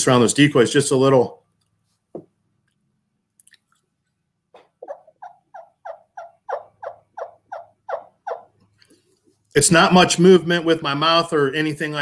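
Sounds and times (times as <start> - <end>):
turkey call yelping: 4.8 - 8.6.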